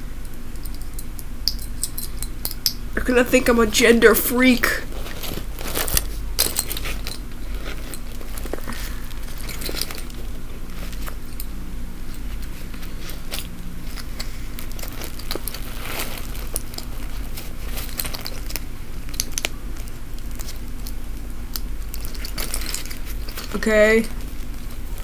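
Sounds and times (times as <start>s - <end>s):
steady low hum: 0.0s - 25.0s
small metal clicks: 0.2s - 2.8s, 13.3s - 25.0s
fabric backpack rustling: 4.7s - 19.1s.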